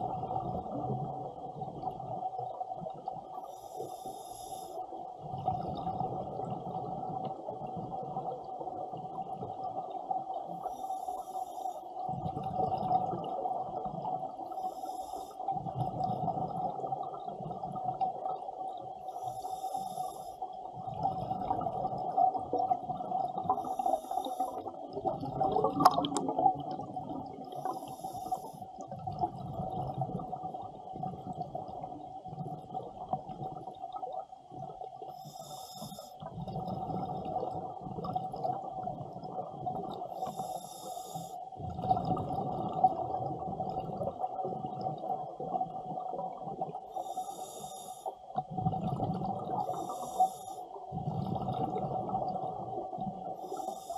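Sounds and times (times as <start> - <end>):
diver breathing through regulator: 3.4 - 4.8, 10.6 - 12.0, 14.5 - 15.5, 19.1 - 20.4, 23.5 - 24.8, 27.5 - 28.8, 35.1 - 36.2, 40.1 - 41.5, 46.9 - 48.2, 49.6 - 51.5, 53.4 - 53.9
bubbles hissing: 20.8 - 31.4.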